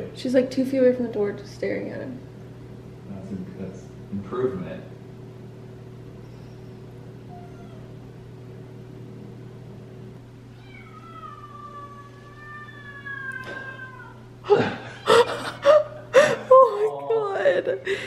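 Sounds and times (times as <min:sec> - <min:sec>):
kitten meowing: 0:10.5 - 0:14.2.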